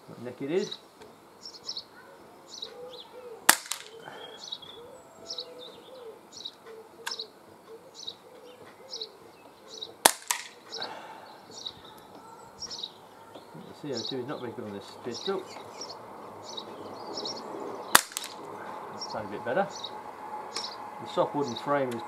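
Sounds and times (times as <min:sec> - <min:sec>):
birds chirping: 0:00.0 - 0:22.0
pellet pistol shots: 0:03.5 - 0:04.0, 0:10.0 - 0:10.6, 0:17.9 - 0:18.4
pellet striking target: 0:03.5 - 0:04.0, 0:10.0 - 0:10.6, 0:17.9 - 0:18.4.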